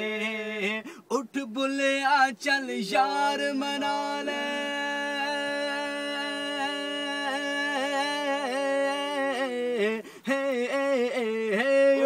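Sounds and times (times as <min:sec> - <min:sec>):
man singing unaccompanied: 0:00.0 - 0:12.0.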